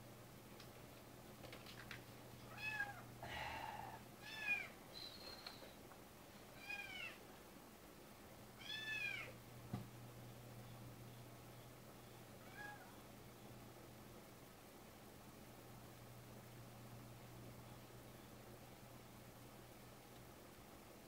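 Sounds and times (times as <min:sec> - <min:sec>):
cat meowing: 0:02.5 - 0:03.0, 0:06.6 - 0:07.2, 0:08.6 - 0:09.3, 0:12.4 - 0:13.0.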